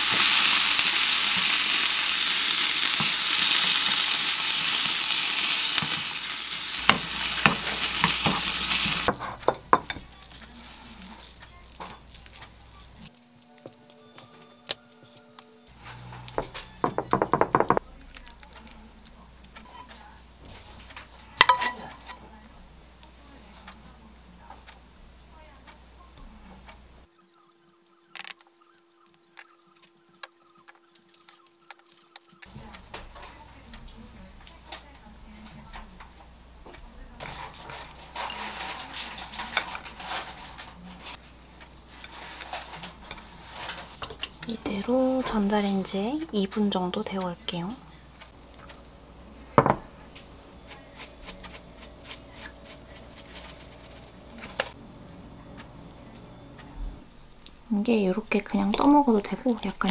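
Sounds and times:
ceramic dish knocking on counter: 16.4 - 17.8, 49.6 - 49.8.

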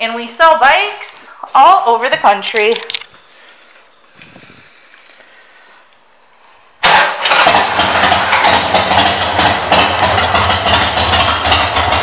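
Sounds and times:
motorcycle engine starting and idling: 6.8 - 12.0.

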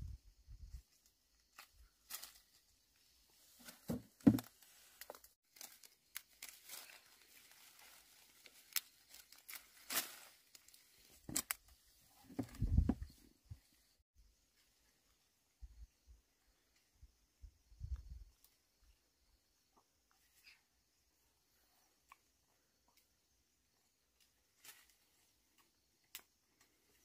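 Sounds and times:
thumps: 3.8 - 4.5.

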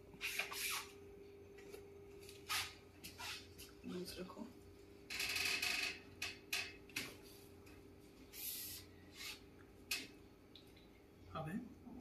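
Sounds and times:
rubbing and rustling of hands and clothing: 1.6 - 3.8.

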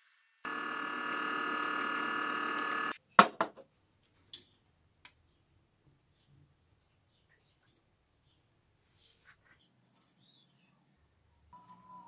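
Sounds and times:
machine hum: 0.4 - 3.0.

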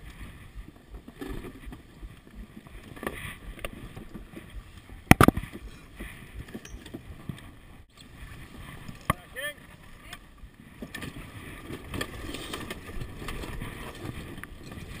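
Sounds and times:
water splashing along hull: 0.0 - 15.0
wind on microphone: 0.0 - 15.0.

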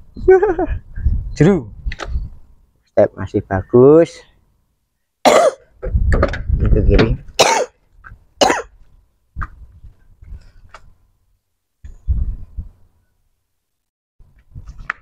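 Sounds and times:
person coughing: 5.3 - 5.6, 7.4 - 7.8, 8.4 - 8.7.

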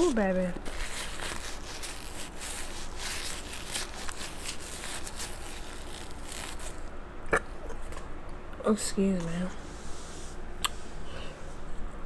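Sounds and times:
crab shell crackling: 0.0 - 6.9.

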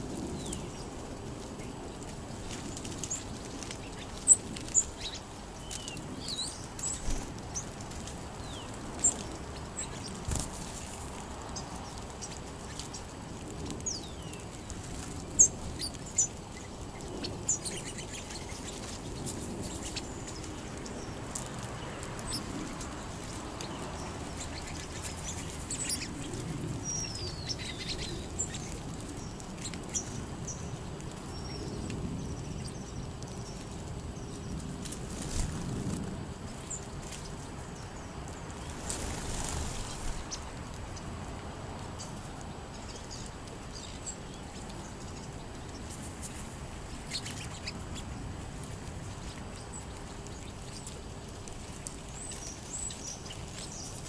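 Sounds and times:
birds chirping: 8.4 - 34.6.

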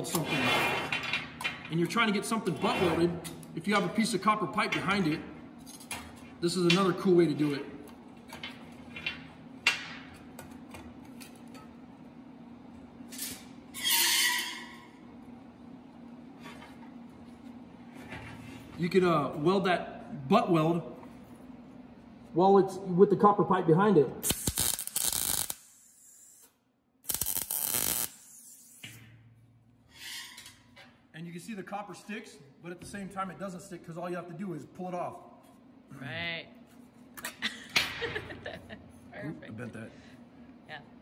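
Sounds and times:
metal scraping across table: 0.1 - 1.3, 2.4 - 3.2
welding arc crackling: 24.2 - 28.9.

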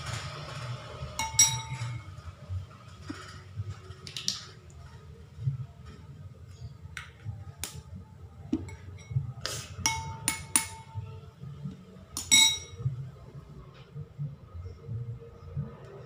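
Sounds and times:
metal spoon clinking ceramic bowl: 1.2 - 2.1, 8.6 - 9.2, 9.8 - 11.0, 12.2 - 12.8.

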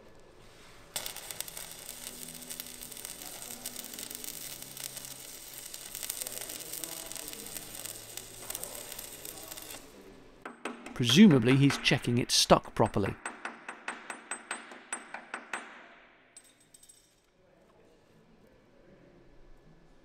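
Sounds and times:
arc welder crackling and sizzling: 0.0 - 10.1.

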